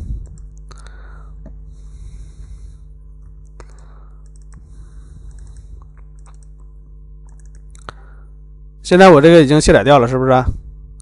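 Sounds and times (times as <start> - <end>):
low electrical hum: 0.0 - 11.0
computer mouse clicks: 3.4 - 8.0.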